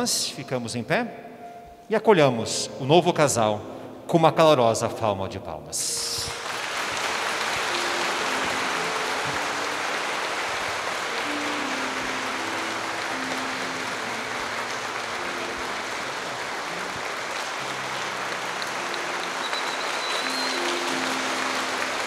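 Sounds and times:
soft instrumental music: 0.0 - 22.0
crowd applauding: 6.2 - 22.0.

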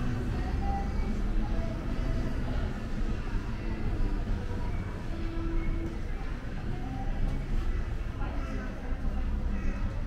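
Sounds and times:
low street rumble: 0.0 - 10.0
voices: 0.0 - 10.0.

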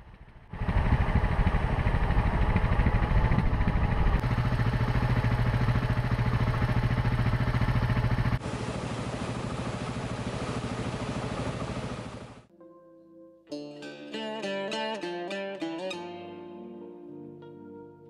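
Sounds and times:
motorcycle engine running: 0.0 - 12.5.

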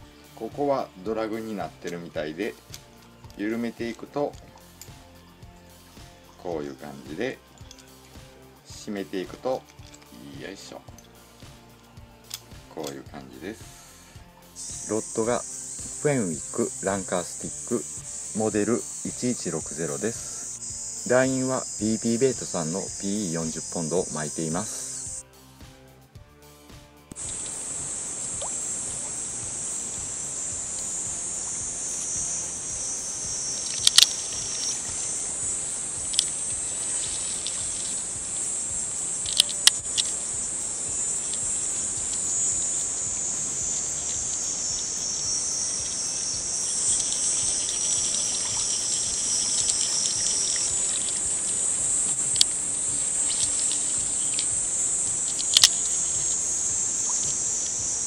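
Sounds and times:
insects shrilling: 0.0 - 25.4, 27.1 - 58.0
sharp clicks: 27.1 - 57.8.

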